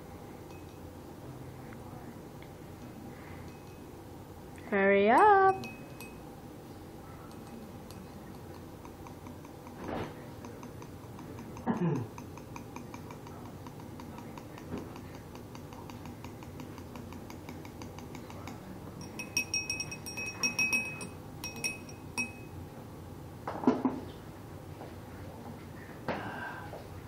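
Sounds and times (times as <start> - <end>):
ringing glass clinks: 3.4 - 3.9, 5.1 - 6.2, 19.0 - 22.6.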